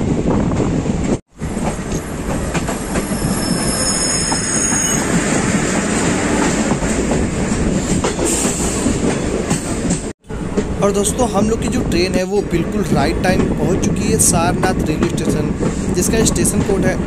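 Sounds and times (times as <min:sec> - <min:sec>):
train wheels rumbling on track: 0:00.0 - 0:17.0
high wheel squeal: 0:02.6 - 0:05.6.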